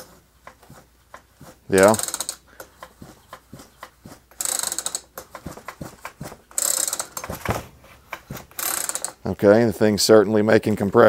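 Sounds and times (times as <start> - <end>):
chainsaw recoil starter ratcheting: 1.7 - 2.9, 4.3 - 7.5, 8.2 - 9.4
starter cord pull rush: 1.7 - 9.3.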